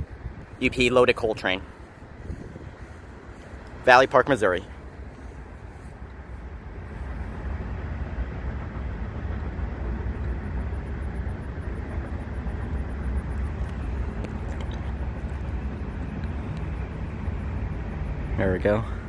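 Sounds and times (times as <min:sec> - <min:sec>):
train rumbling past: 0:00.0 - 0:19.0
faint clicks: 0:13.3 - 0:16.7.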